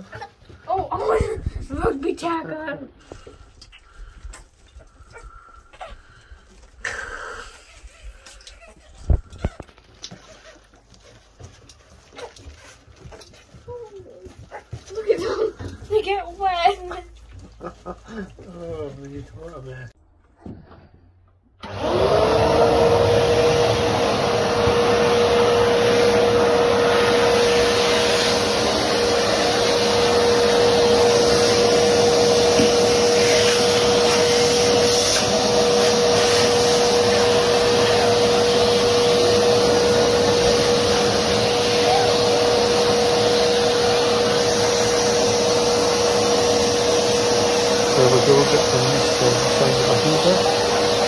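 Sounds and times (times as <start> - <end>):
vacuum cleaner motor whine: 21.6 - 51.0.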